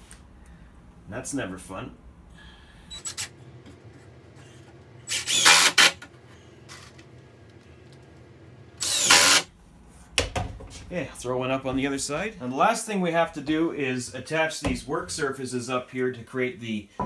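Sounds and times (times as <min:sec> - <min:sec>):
cordless drill driving screws: 0:05.1 - 0:06.0, 0:08.8 - 0:09.5.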